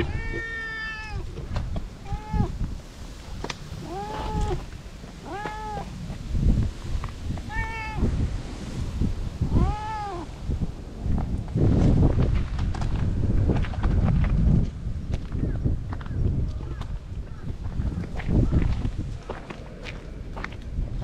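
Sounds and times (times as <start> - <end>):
cat meowing: 0.0 - 1.3, 2.0 - 2.6, 3.8 - 5.9, 7.4 - 8.1, 9.5 - 10.3.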